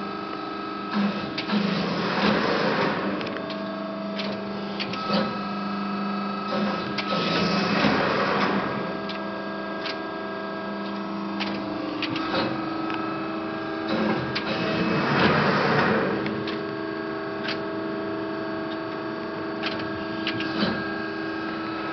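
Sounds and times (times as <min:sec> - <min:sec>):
machine hum: 0:00.0 - 0:21.9
scattered clicks: 0:03.2 - 0:05.4, 0:10.8 - 0:13.0, 0:13.8 - 0:16.8, 0:17.4 - 0:17.7, 0:19.6 - 0:20.8.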